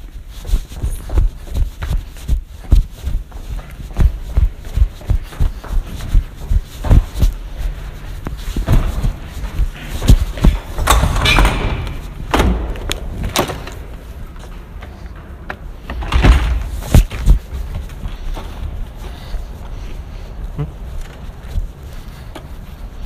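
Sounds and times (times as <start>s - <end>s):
hurried footsteps: 0.0s - 23.0s
door banging: 10.6s - 13.9s, 16.0s - 16.8s.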